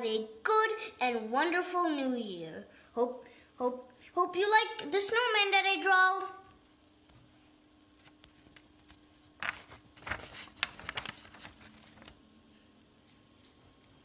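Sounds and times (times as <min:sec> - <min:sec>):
faint steady hum: 0:00.0 - 0:14.0
paper rustling and crackling: 0:08.0 - 0:12.2.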